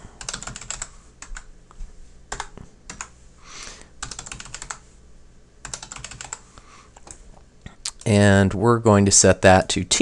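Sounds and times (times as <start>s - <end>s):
keyboard typing: 0.2s - 1.5s, 2.3s - 3.2s, 4.0s - 4.8s, 5.6s - 7.2s.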